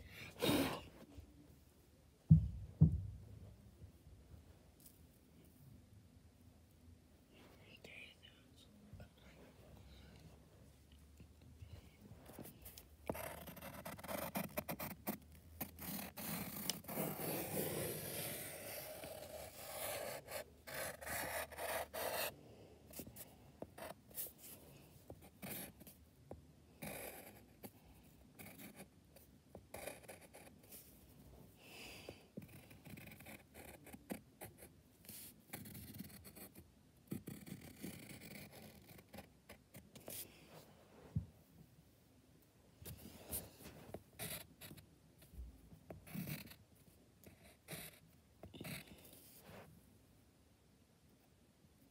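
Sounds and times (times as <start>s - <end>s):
pencil scratching on paper: 12.4s - 22.3s, 22.9s - 24.6s, 25.2s - 26.0s, 26.8s - 27.7s, 28.3s - 28.9s, 29.5s - 30.9s, 32.4s - 40.2s, 43.3s - 44.8s, 46.0s - 46.6s, 47.2s - 48.0s.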